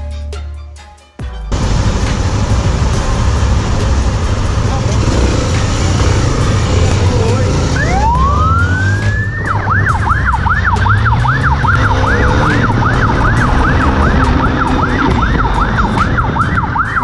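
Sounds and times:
motorcycle engine: 1.5 - 17.0
wind rumble: 1.5 - 17.0
police siren wailing and yelping: 6.0 - 17.0.

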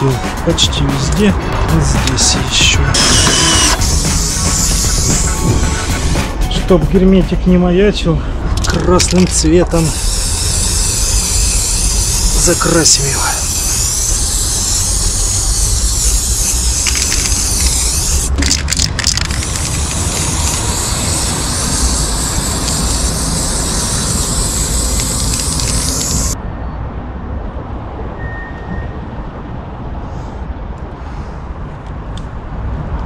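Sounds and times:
aerosol spray can hissing: 2.9 - 6.4, 9.1 - 26.4.

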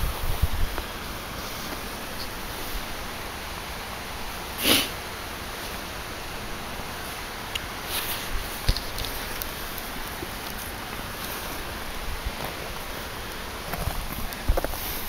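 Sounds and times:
steady outdoor hiss: 0.0 - 15.0
short breathy hiss: 4.5 - 5.8
wood fire crackling and popping: 8.4 - 14.8.

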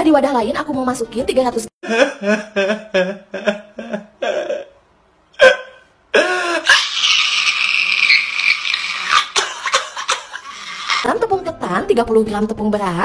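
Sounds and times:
man sobbing: 1.8 - 4.8, 5.4 - 7.7
man wailing: 1.9 - 4.8.

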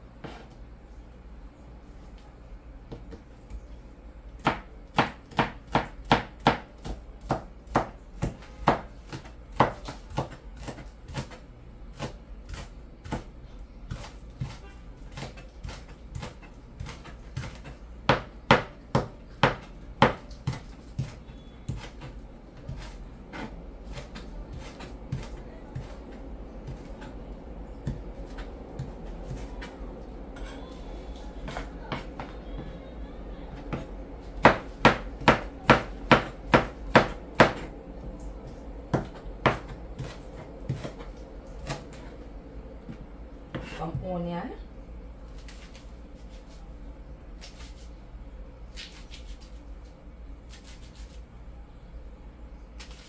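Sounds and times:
knife chopping on cutting board: 4.4 - 13.3, 13.9 - 26.0, 34.4 - 37.7, 38.9 - 41.9.

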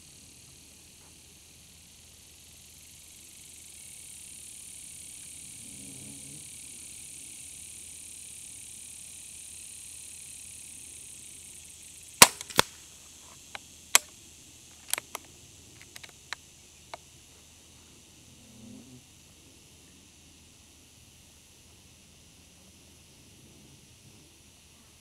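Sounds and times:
air rifle shot crack: 12.2 - 12.8
bolt metallic clicks: 12.2 - 12.8, 14.8 - 15.2, 15.8 - 16.3.

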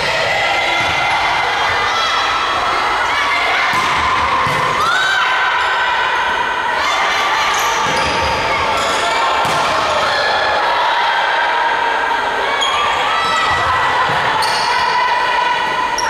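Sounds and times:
voices and crowd noise: 0.0 - 16.0
volleyball hits slapping: 3.7 - 4.8, 9.4 - 9.9.

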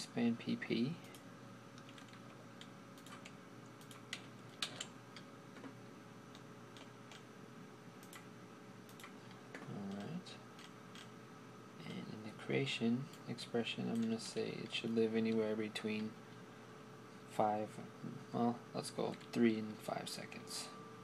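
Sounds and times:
faint steady hum: 0.0 - 21.0
computer mouse clicks: 1.8 - 5.7, 6.3 - 7.3, 8.0 - 8.3, 8.9 - 11.1.

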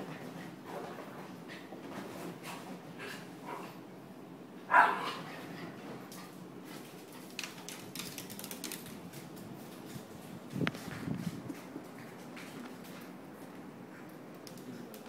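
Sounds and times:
small dog barking: 4.7 - 5.3
dog claws clicking on wooden floor: 7.2 - 9.9.

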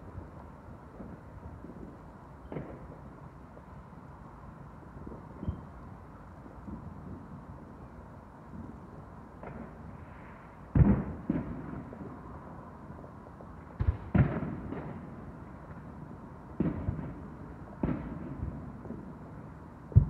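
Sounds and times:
distant fireworks bangs: 0.1 - 3.8, 8.5 - 12.3, 13.0 - 20.0.

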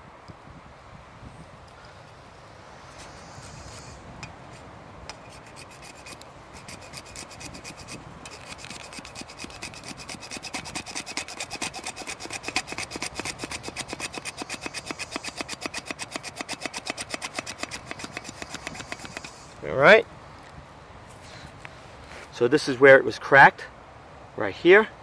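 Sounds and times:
hacksaw cutting plastic pipe: 5.1 - 19.4.

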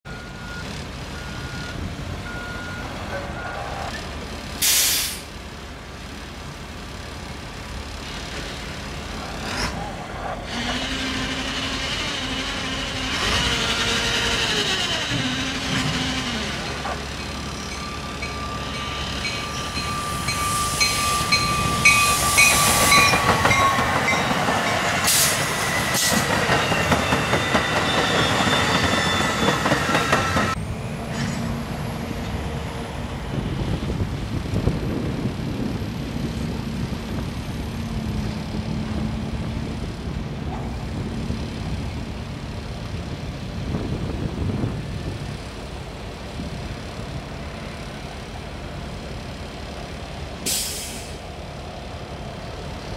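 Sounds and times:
train wheels on rails: 0.6 - 52.9
electric train whining: 8.1 - 40.4.

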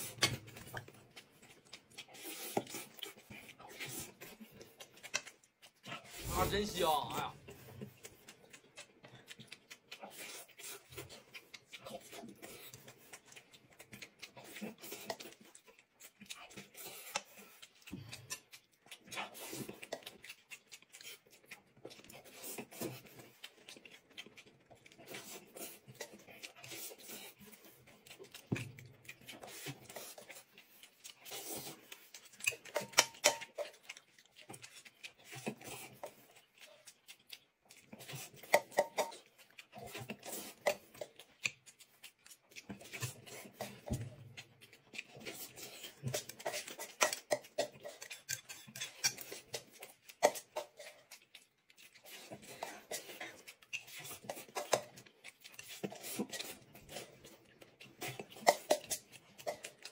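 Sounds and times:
person chewing and smacking: 0.0 - 59.9.

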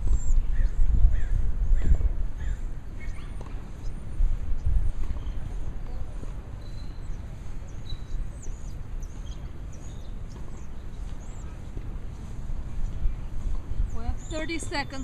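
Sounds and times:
small birds chirping: 0.0 - 15.0
steady low rumble: 0.0 - 15.0.

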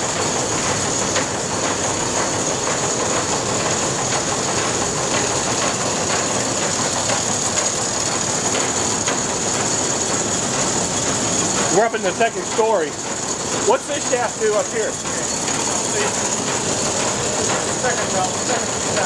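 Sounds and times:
constant high whine: 0.0 - 19.0
mill machinery clattering: 0.0 - 19.0.

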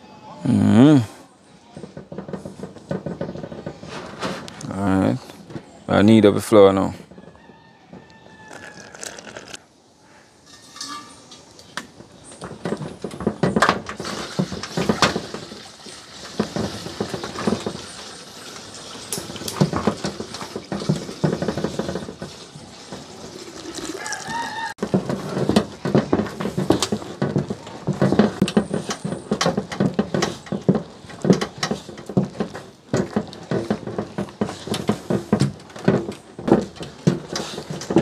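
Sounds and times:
water pouring into metal pot: 22.2 - 24.7.

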